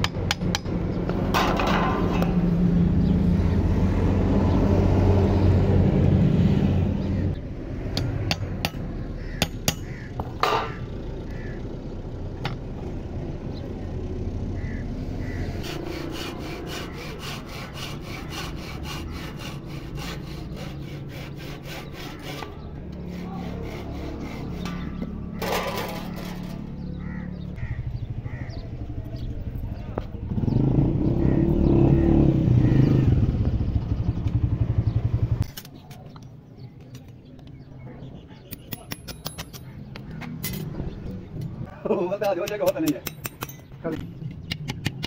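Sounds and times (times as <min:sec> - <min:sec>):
hand saw cutting wood: 0:15.5 - 0:26.5
scraping: 0:15.5 - 0:27.3.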